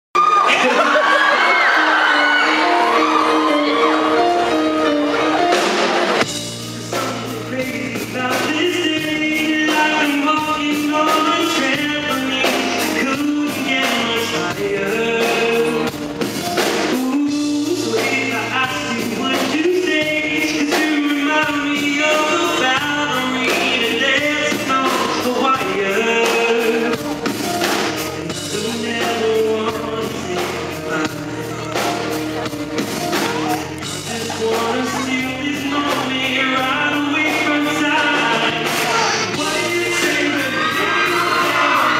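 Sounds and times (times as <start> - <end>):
rock band playing: 0.2 - 41.9
man singing into microphone: 6.6 - 16.1, 16.7 - 27.3, 28.2 - 32.2, 33.5 - 41.9.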